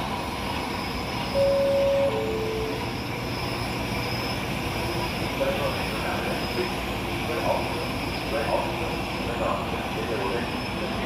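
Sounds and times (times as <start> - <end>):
railway noise: 0.0 - 11.0
two-tone train horn: 1.4 - 2.9.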